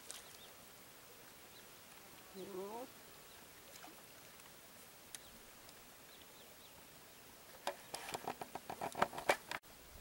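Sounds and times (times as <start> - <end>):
faint outdoor hiss: 0.0 - 10.0
small birds chirping: 0.1 - 0.7, 1.3 - 8.1
faint click: 5.1 - 5.8.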